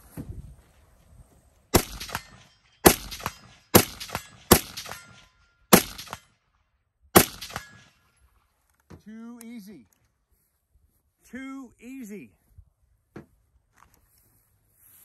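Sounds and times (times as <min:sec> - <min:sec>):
rifle shots: 0:01.7 - 0:06.3, 0:07.2 - 0:07.9.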